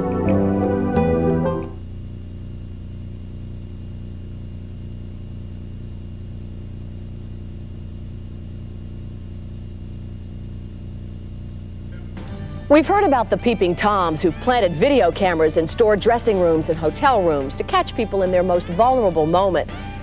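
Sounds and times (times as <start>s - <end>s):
low electrical hum: 0.0s - 20.0s
faint high whine: 0.7s - 14.6s.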